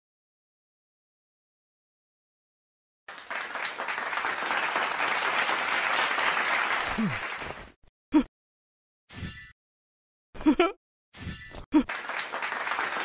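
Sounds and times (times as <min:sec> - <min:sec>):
audience applauding: 0:03.1 - 0:07.8, 0:11.9 - 0:13.0.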